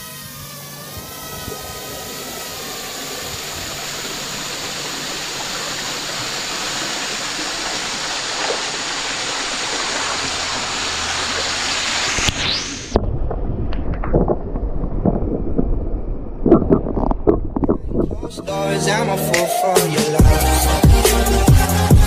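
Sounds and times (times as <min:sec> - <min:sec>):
wavering whining tones: 0:00.0 - 0:08.3, 0:15.8 - 0:20.8
waterfall rushing: 0:01.1 - 0:13.0.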